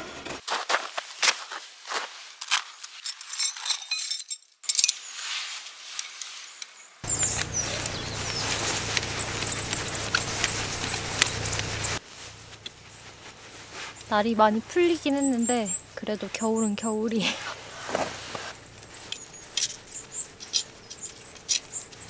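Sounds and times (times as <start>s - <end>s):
knife scraping twigs: 0.5s - 14.2s, 15.0s - 22.0s
steady hiss with low hum: 4.1s - 22.0s
twigs snapping: 6.0s - 12.0s.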